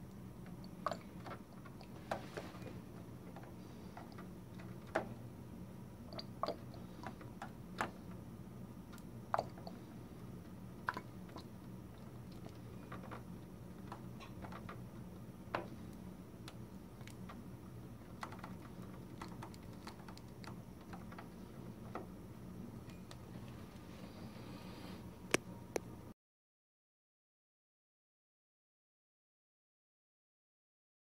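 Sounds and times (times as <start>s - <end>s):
ink draining with small pops: 0.5s - 2.0s, 6.1s - 8.0s, 8.9s - 9.8s, 10.8s - 14.8s.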